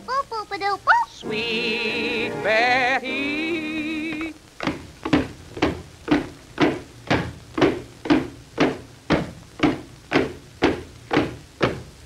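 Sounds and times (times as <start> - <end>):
cartoon marching footsteps: 4.0 - 12.0.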